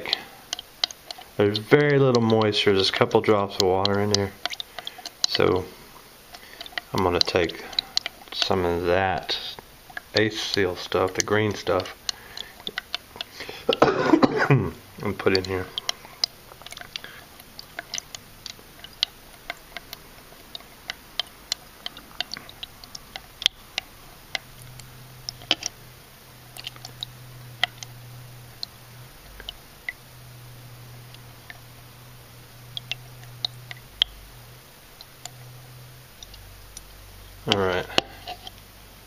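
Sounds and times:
liquid dripping into plastic cup: 0.0 - 34.3, 34.9 - 38.7
low hum: 0.0 - 39.0.

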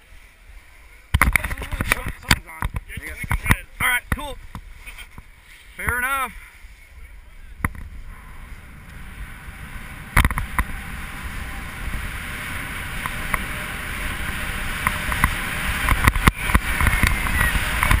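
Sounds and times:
snowboard scraping over snow: 2.8 - 18.0
wind on microphone: 6.5 - 18.0.

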